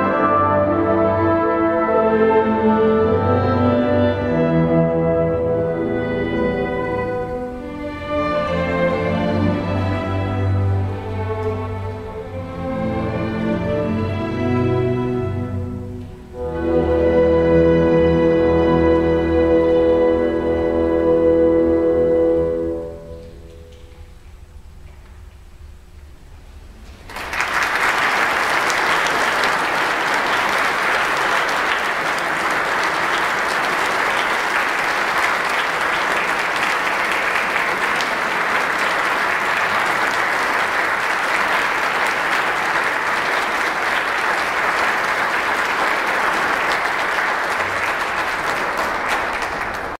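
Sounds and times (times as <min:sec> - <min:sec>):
audience applauding: 0:27.0 - 0:50.0.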